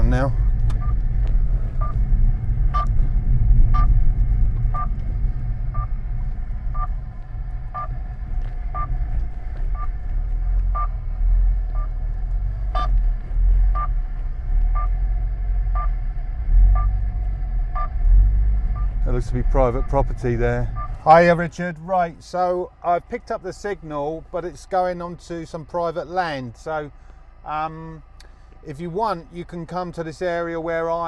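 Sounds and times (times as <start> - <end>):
car rumbling on rough lane: 0.0 - 31.0
short beeping tones: 2.8 - 3.0, 3.7 - 3.9, 4.7 - 4.9, 9.7 - 10.0, 10.7 - 11.0, 12.7 - 13.0, 13.7 - 14.0, 14.7 - 15.0, 15.8 - 16.0, 16.7 - 17.0, 17.8 - 18.0.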